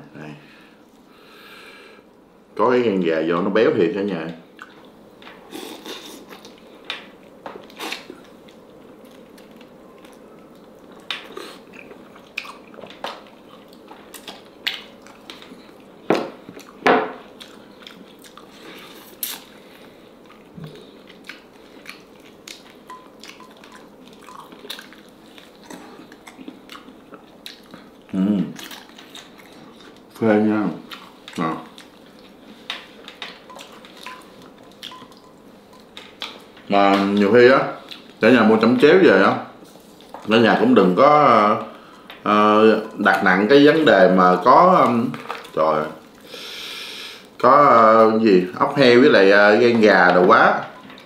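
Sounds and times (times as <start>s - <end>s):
person chewing and biting: 20.2s - 28.0s.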